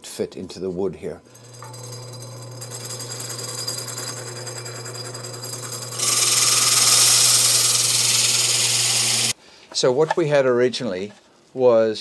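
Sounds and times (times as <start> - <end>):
drill press motor hum: 1.3 - 9.4
hole saw cutting wood: 1.4 - 9.4.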